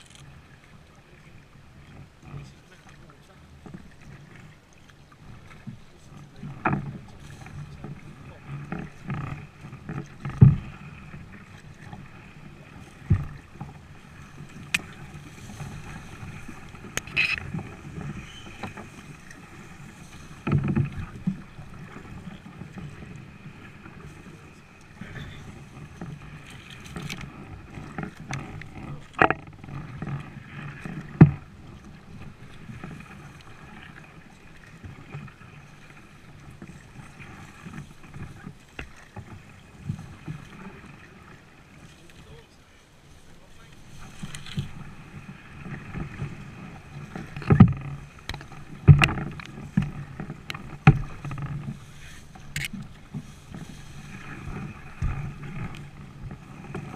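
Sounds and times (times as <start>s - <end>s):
paddle strokes in water: 0.0s - 56.9s
reeds brushing hull: 5.2s - 56.9s
sharp knocks against hull: 8.8s - 10.8s, 13.0s - 13.7s, 26.9s - 30.2s, 30.8s - 31.5s, 47.2s - 51.7s.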